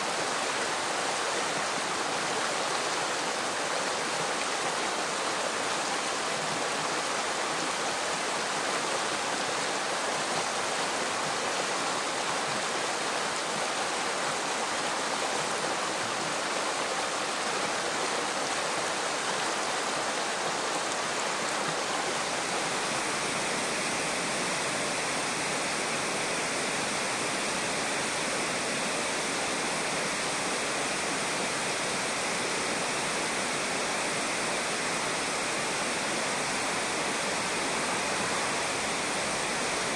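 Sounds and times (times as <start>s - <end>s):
river rushing over stones: 0.0s - 39.9s.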